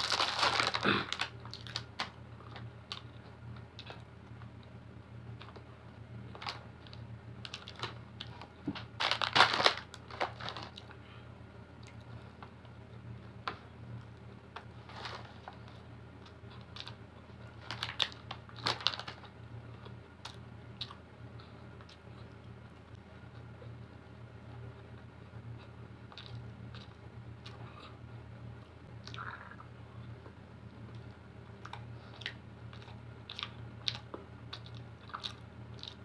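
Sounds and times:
crackly rustling: 0.0s - 11.0s, 11.8s - 23.8s
low steady hum: 0.0s - 36.0s
mouth clicks and chewing: 31.6s - 36.0s.

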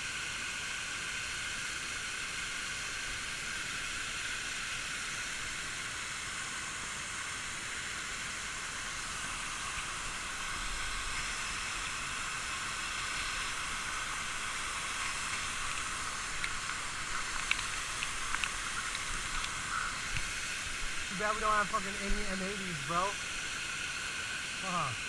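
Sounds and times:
waterfall rushing: 2.2s - 25.0s
small clicks: 15.2s - 20.3s.

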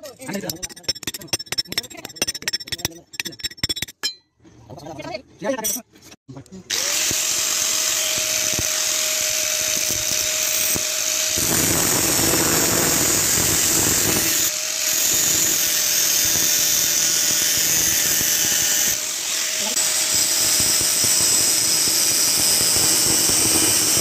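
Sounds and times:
angle grinder cutting metal: 6.7s - 24.0s.

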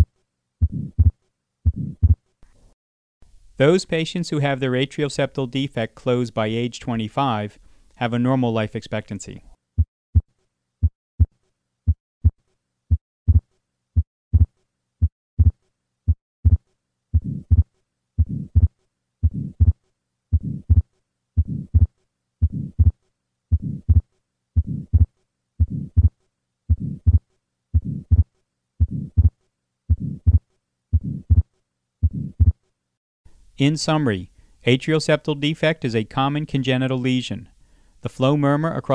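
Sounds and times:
heartbeat lub-dub: 0.6s - 2.2s, 14.3s - 14.5s, 15.4s - 16.6s, 17.2s - 27.2s, 27.8s - 30.4s, 31.0s - 32.6s
soft heart murmur: 0.6s - 2.2s, 13.3s - 16.6s, 17.2s - 27.2s, 27.8s - 32.6s.

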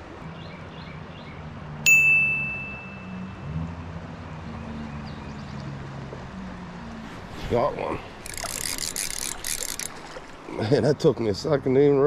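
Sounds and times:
stream water rushing: 1.0s - 11.3s
bell-like ding: 1.9s - 3.4s.

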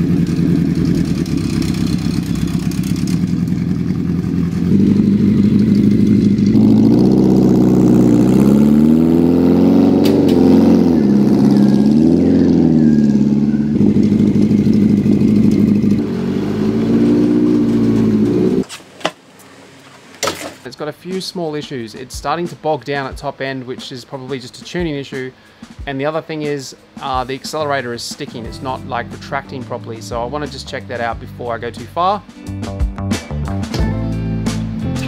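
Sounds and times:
motorcycle engine idling and revving: 0.0s - 18.7s.

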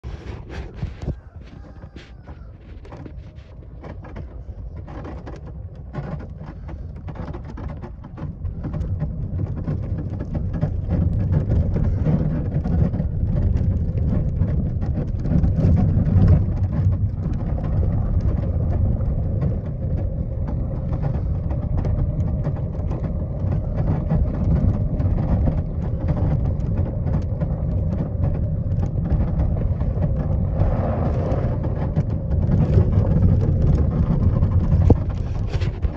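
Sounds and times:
vehicle engine rumble: 8.0s - 35.9s.

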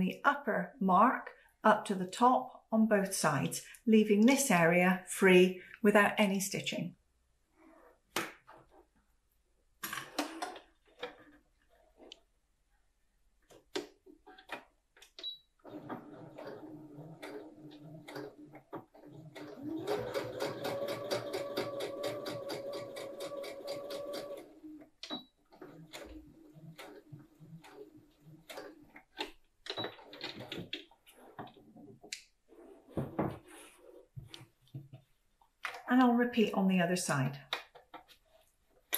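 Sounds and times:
sewing machine stitching: 13.5s - 31.8s.

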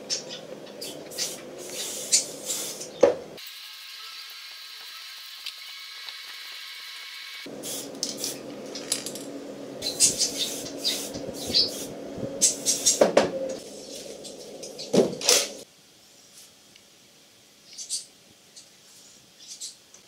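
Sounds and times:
spray-paint can hissing: 1.1s - 3.9s, 5.3s - 8.4s, 9.9s - 13.0s
metal parts clinking: 8.0s - 9.3s.

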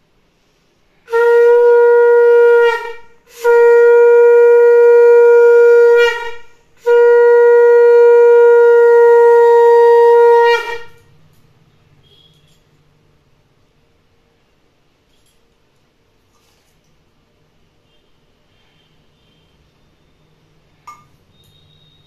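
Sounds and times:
conch shell blasts: 1.1s - 11.1s.

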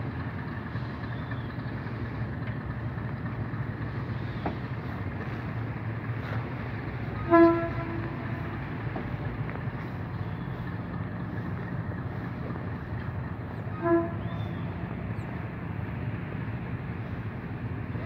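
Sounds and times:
diesel train rumbling: 0.0s - 18.0s
train horn toot: 7.2s - 8.8s, 13.6s - 14.9s.

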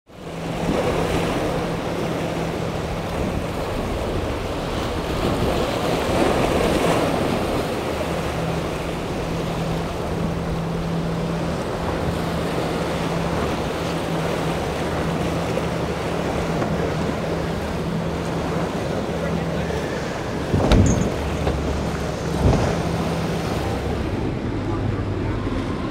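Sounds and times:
outboard engines droning: 0.1s - 25.9s
wind buffeting microphone: 0.3s - 25.9s.

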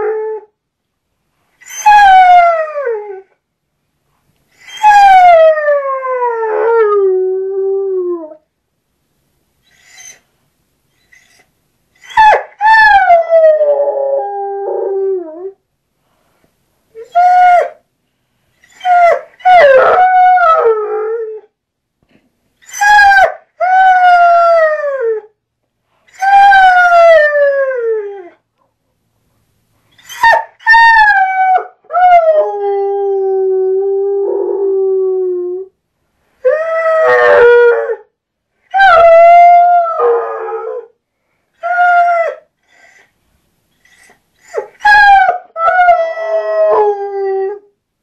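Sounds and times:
hound howling and baying: 38.7s - 40.9s.

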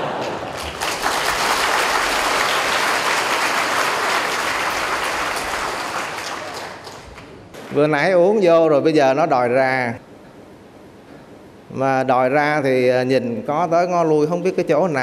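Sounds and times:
audience laughing: 0.0s - 0.8s
audience applauding: 0.0s - 7.9s.

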